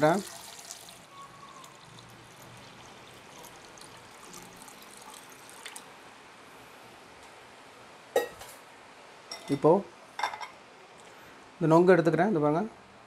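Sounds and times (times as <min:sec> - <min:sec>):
liquid pouring into metal jar: 0:00.0 - 0:05.8
water splashing and trickling: 0:00.0 - 0:05.9.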